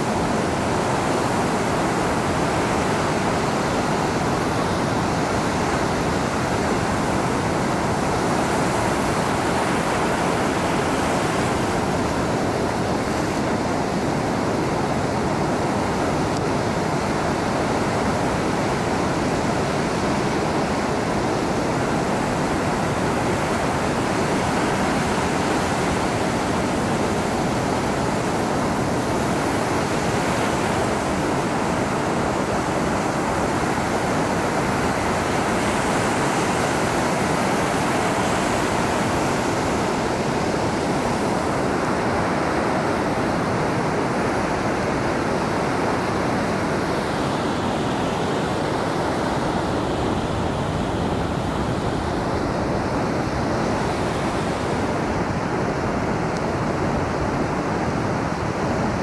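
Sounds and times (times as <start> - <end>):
surf washing over rocks: 0.0 - 59.0.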